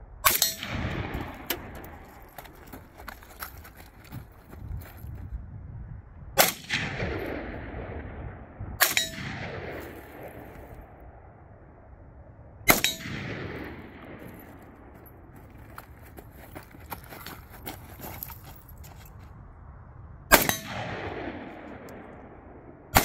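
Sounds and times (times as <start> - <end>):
rifle shots with echo: 0.2 - 2.3, 6.4 - 11.2, 12.7 - 15.3, 20.3 - 23.0.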